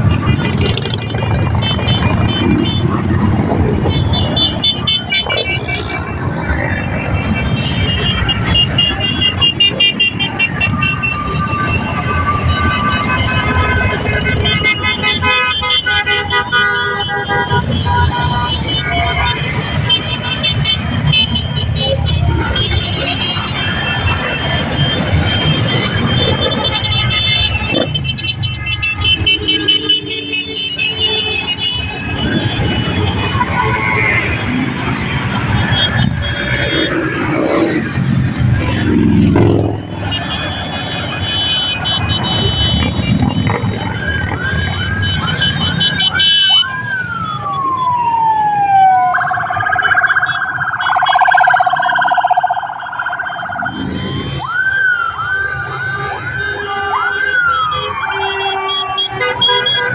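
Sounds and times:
street traffic: 0.0s - 59.9s
electronic police sirens: 4.5s - 14.8s, 20.8s - 28.1s, 31.7s - 41.1s, 42.0s - 59.9s.

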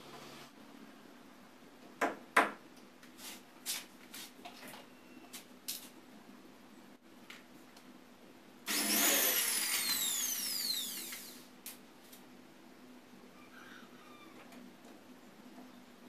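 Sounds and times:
power drill whining: 8.7s - 11.5s.

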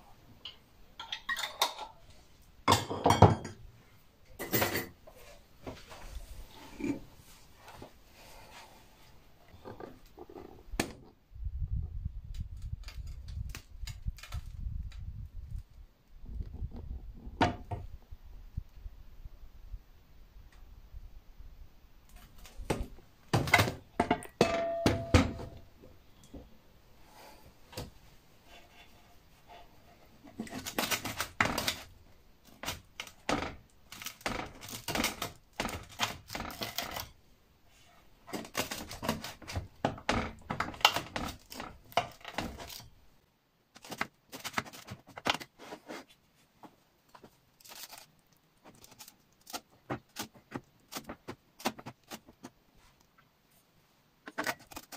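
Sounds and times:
metal baking tray clattering: 23.5s - 25.5s
knife sawing and scraping tray: 28.4s - 31.7s.

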